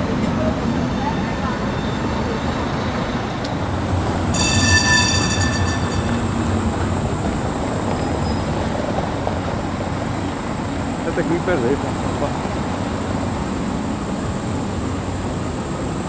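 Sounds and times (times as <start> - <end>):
tram wheels rumbling on rails: 0.0 - 16.0
high wheel squeal: 4.3 - 8.7.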